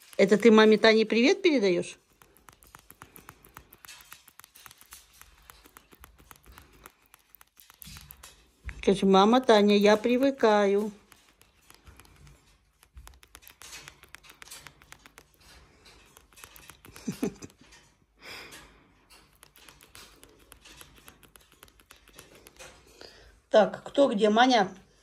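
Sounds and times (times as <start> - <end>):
cockatoo beak clicking: 0.0 - 23.3.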